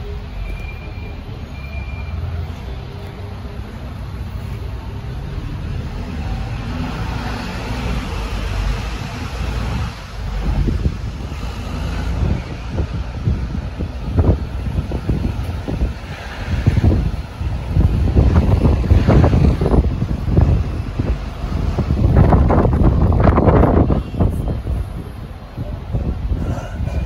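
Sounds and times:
vehicle low rumble: 0.0s - 27.0s
wind buffeting microphone: 6.3s - 27.0s.

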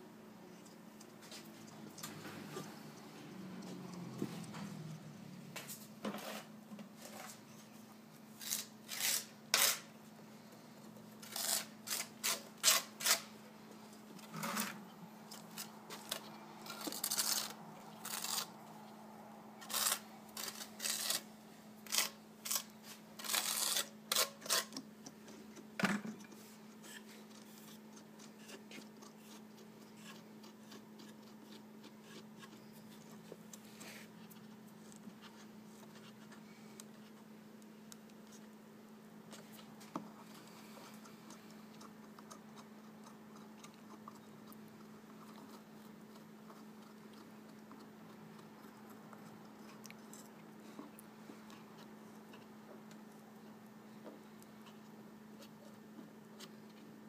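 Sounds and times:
steady low hum: 0.0s - 57.0s
short scrapes: 5.7s - 7.4s.

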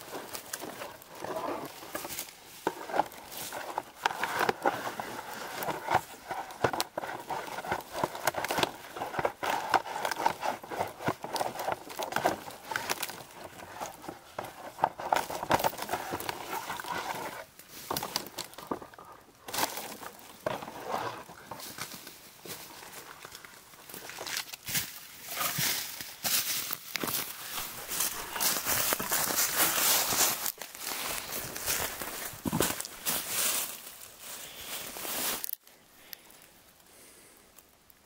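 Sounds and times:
bark crackling and peeling: 0.0s - 21.7s, 27.0s - 33.6s
footsteps in dry leaves: 19.5s - 35.6s.

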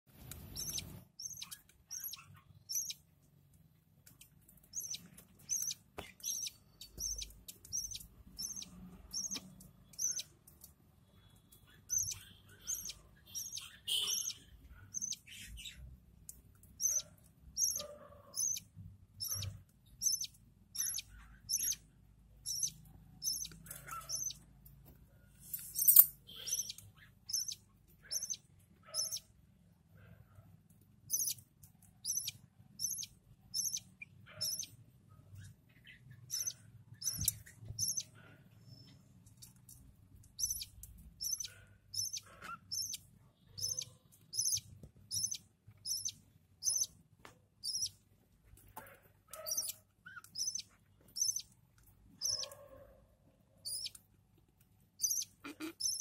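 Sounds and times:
nestlings cheeping: 0.4s - 3.1s, 4.2s - 15.9s, 16.7s - 24.5s, 25.5s - 29.3s, 31.1s - 34.8s, 36.1s - 38.2s, 39.8s - 47.0s, 47.6s - 48.0s, 49.4s - 52.6s, 53.6s - 54.0s, 55.0s - 56.0s.

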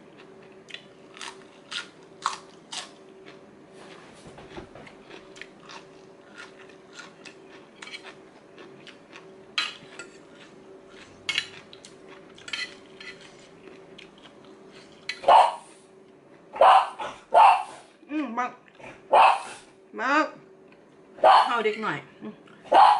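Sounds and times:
faint steady hum: 0.0s - 22.9s
cutlery clinking on a ceramic plate: 12.4s - 13.4s.

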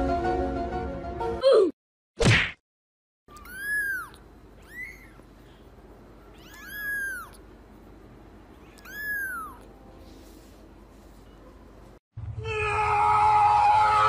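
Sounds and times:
kitten mewing: 3.3s - 5.3s, 6.3s - 7.5s, 8.6s - 9.7s.

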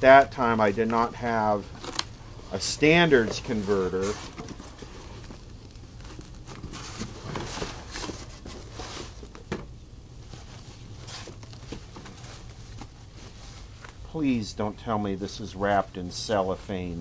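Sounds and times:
bubble wrap crinkling: 0.1s - 9.5s, 10.2s - 14.0s
sharp plastic crackle: 1.6s - 2.2s, 3.4s - 9.5s.

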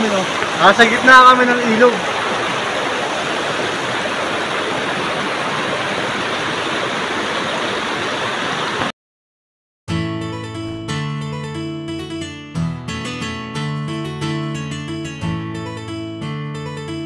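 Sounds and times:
river rushing over rocks: 0.0s - 8.9s
acoustic guitar music: 9.9s - 17.0s.

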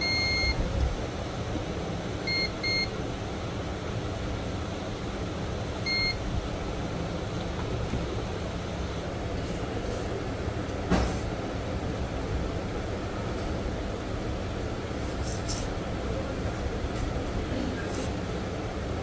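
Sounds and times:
short high beeps: 0.0s - 0.6s
steady low hum: 0.0s - 19.0s.

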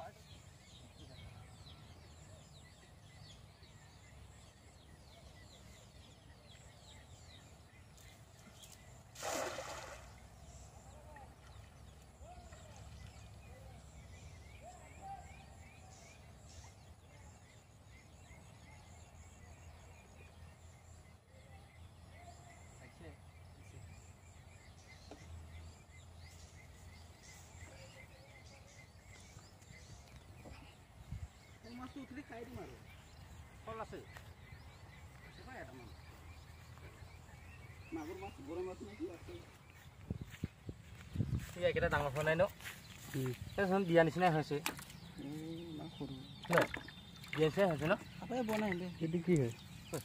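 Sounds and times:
faint bird chirps: 0.0s - 50.0s
net splashing into water: 9.1s - 10.2s, 46.4s - 47.9s.

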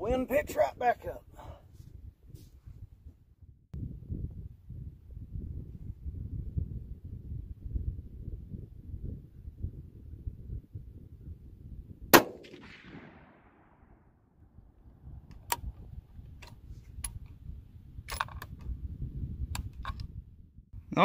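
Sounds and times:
wind rumbling on microphone: 0.0s - 21.0s
rifle shot with echo: 12.1s - 14.2s.

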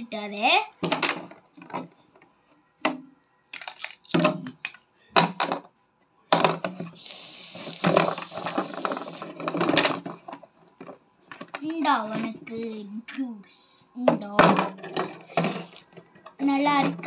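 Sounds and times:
plastic toys rattling: 3.5s - 4.8s, 7.4s - 12.7s
plastic toys clattering in a jar: 3.5s - 5.6s, 7.7s - 12.5s.

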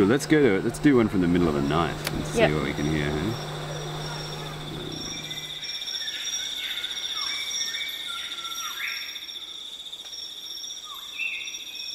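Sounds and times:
insect chorus shrill: 2.5s - 11.9s.

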